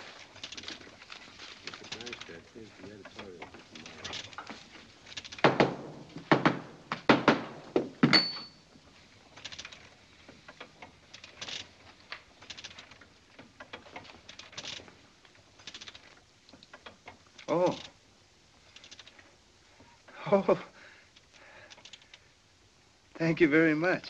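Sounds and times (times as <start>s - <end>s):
printing press heavy knocks: 5.4s - 8.4s.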